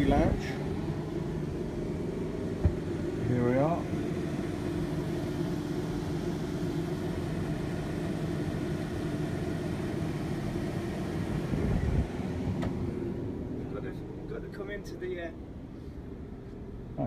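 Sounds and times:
bus engine hum: 0:00.0 - 0:17.0.

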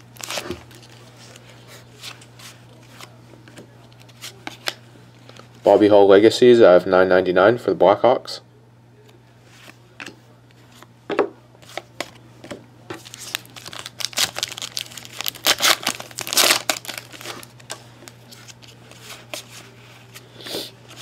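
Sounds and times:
foil wrapper crinkling and ripping: 0:13.0 - 0:19.5.

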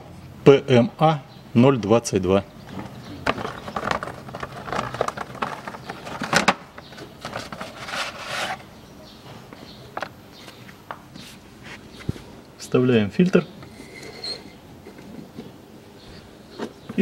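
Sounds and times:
cardboard rustling: 0:02.7 - 0:08.6.

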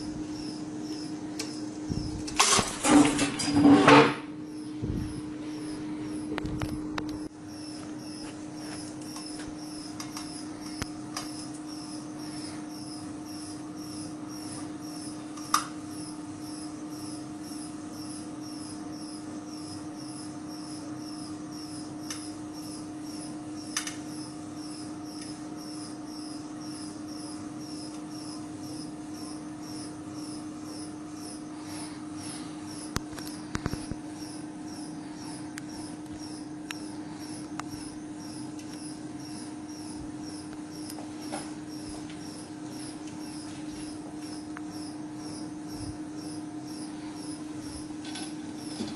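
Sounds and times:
testing machine humming: 0:00.0 - 0:48.9
panel cracking clicks: 0:23.7 - 0:24.0.

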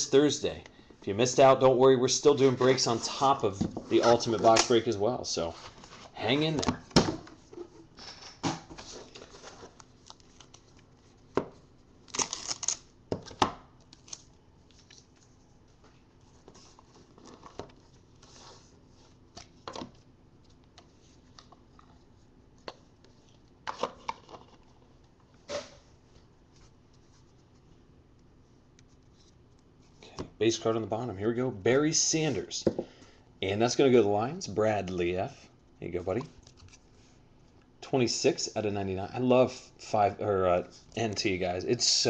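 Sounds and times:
packaging rustles tears and clicks: 0:12.0 - 0:12.9.

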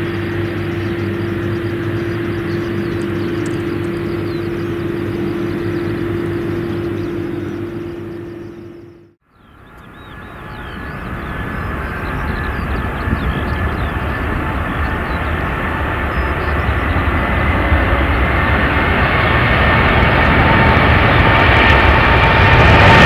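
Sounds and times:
jet engines at takeoff thrust: 0:00.0 - 0:23.0.

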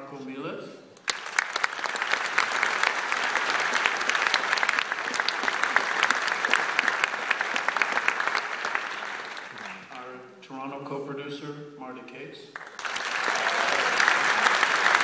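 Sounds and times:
audience applauding: 0:01.0 - 0:10.0, 0:12.6 - 0:15.0.

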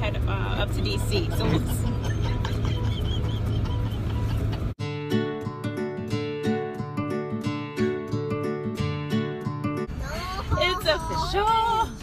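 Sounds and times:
strummed acoustic guitar: 0:00.9 - 0:09.9.

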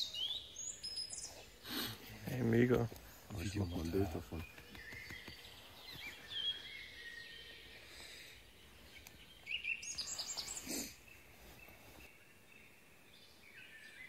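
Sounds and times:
faint outdoor background noise: 0:00.0 - 0:14.0
songbirds calling: 0:00.0 - 0:14.0.

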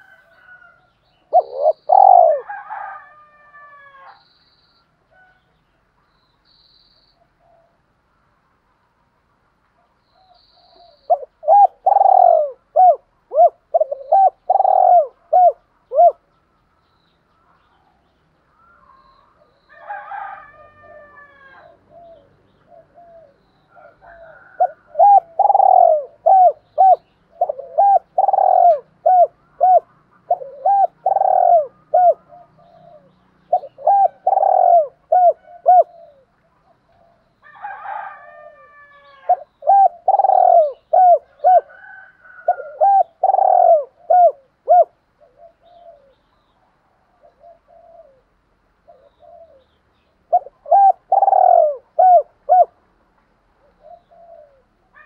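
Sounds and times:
dove cooing: 0:00.0 - 0:04.2, 0:10.1 - 0:16.4, 0:18.6 - 0:52.8, 0:53.5 - 0:55.0.

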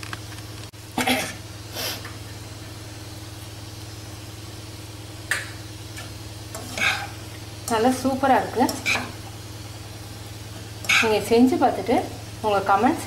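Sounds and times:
steady low hum: 0:00.0 - 0:13.0
utensils scraping a pan: 0:06.5 - 0:07.8, 0:08.5 - 0:09.2, 0:10.8 - 0:11.2.

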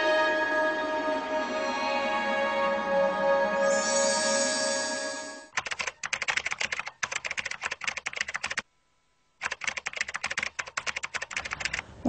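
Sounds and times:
keyboard typing clicks: 0:05.5 - 0:08.6, 0:09.4 - 0:11.8.

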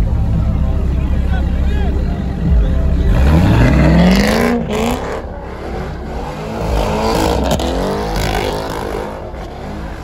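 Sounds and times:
car engine revving: 0:02.2 - 0:10.0.

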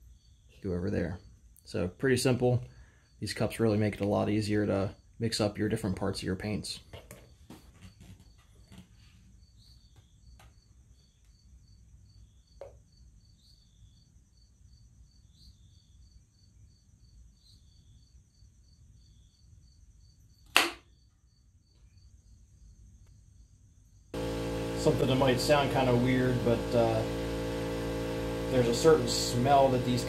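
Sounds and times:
loud sharp clack: 0:20.5 - 0:20.8.

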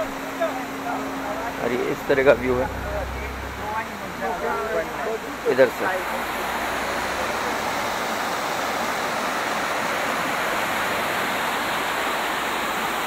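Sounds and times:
small waterfall rushing over rocks: 0:05.6 - 0:13.0.

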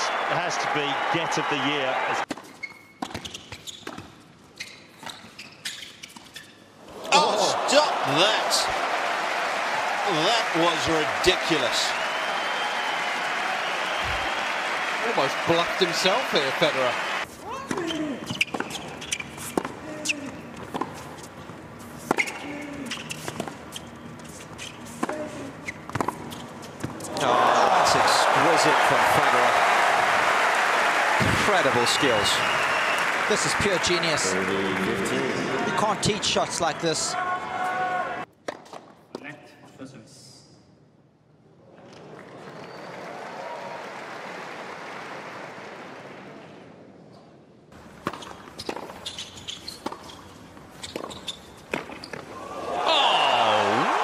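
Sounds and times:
crowd applause: 0:00.0 - 0:02.2, 0:07.1 - 0:17.2, 0:27.1 - 0:37.1, 0:42.0 - 0:46.4, 0:52.6 - 0:54.0
shoe squeaks on court: 0:02.3 - 0:06.7, 0:17.7 - 0:20.2, 0:22.0 - 0:27.0, 0:48.1 - 0:52.3.

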